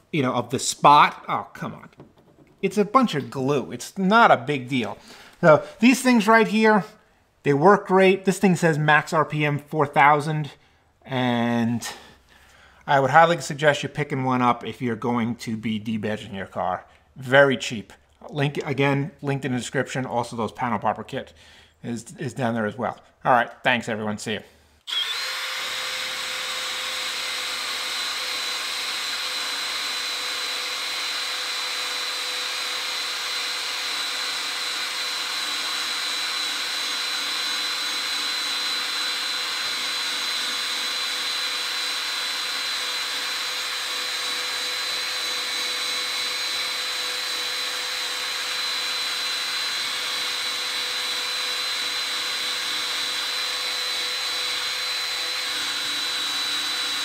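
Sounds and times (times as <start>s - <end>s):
cordless drill motor whine: 24.8s - 57.0s.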